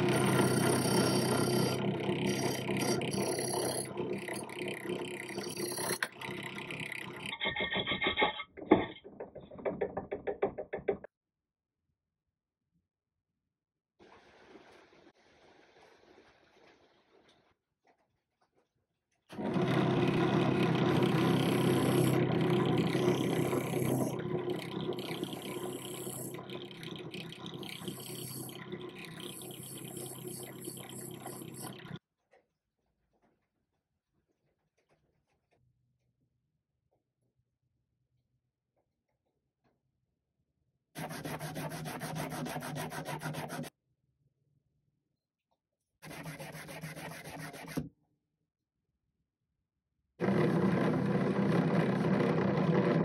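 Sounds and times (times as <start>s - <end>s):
wire wheel brush grinding steel: 0.0s - 8.4s, 19.4s - 31.7s.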